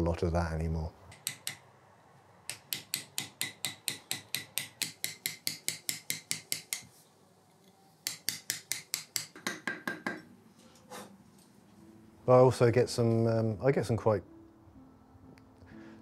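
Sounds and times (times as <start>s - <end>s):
mallet tapping chisel on stone: 1.1s - 1.7s, 2.5s - 6.9s, 8.0s - 10.3s.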